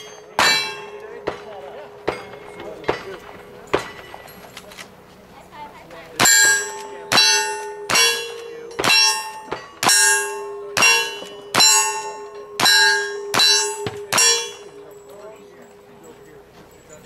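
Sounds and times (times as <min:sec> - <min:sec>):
steel target clanging: 0:00.0 - 0:05.0, 0:06.2 - 0:17.0.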